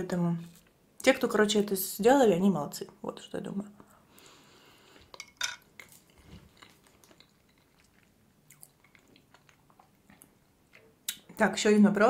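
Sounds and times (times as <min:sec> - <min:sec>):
soft chewing: 0:04.8 - 0:11.4.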